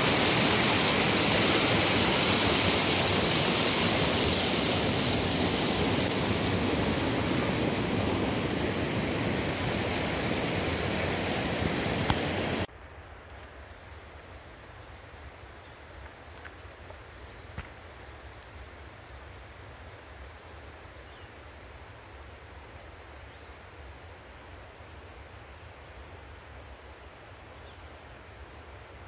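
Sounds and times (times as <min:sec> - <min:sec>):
mountain stream rushing: 0:00.0 - 0:12.7.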